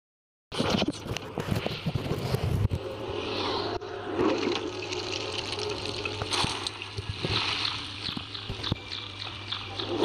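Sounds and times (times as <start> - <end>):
water trickling and splashing: 4.3 - 9.6.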